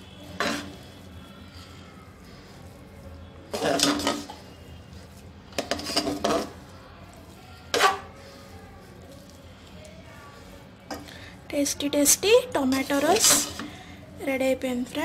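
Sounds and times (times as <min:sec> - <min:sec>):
ladle scraping pressure cooker: 0:03.5 - 0:04.4.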